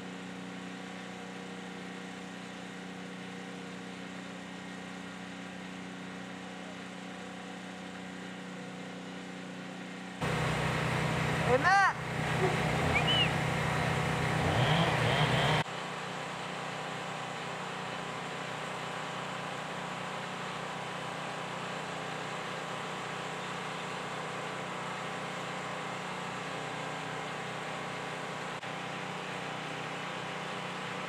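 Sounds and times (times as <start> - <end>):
machinery engine hum: 10.2 - 15.6
short high chirp: 12.9 - 13.4.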